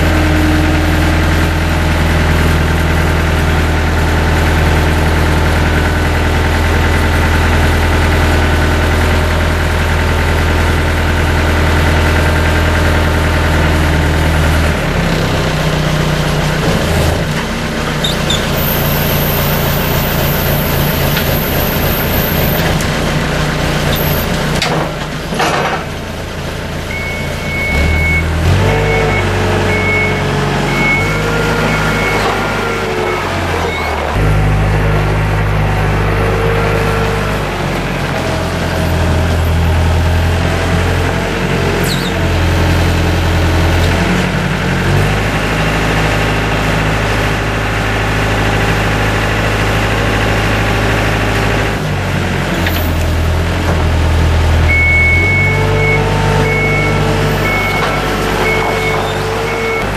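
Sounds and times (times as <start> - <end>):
diesel engine running: 0.0 - 59.9
reversing alarm beeping: 26.9 - 34.2, 54.6 - 59.9.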